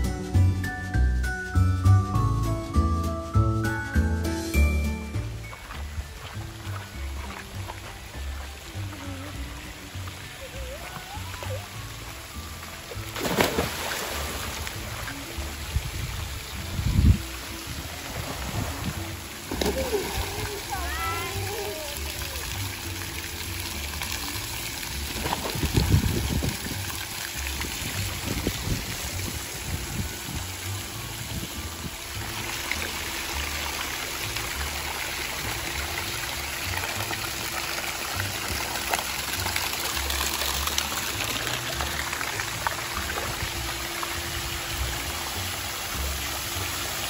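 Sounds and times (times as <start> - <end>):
water splashing into a pool: 5.6 - 47.0
loud water splash: 13.0 - 22.7, 23.4 - 30.2.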